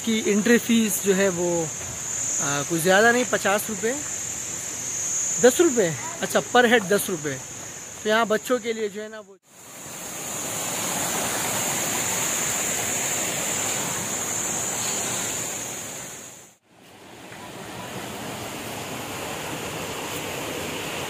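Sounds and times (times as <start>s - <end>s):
stream water rushing: 9.5s - 21.0s.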